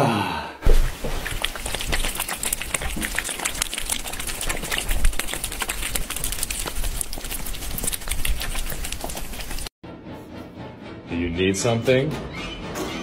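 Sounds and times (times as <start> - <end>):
cats chewing and licking: 0.7 - 9.8.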